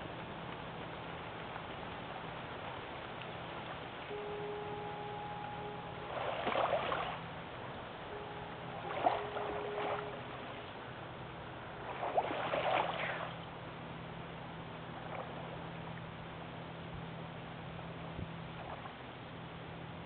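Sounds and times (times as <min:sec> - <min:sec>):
waves lapping on sand: 0:00.0 - 0:17.0
steady low hum: 0:00.0 - 0:20.0
faint foghorn tone: 0:04.1 - 0:12.2.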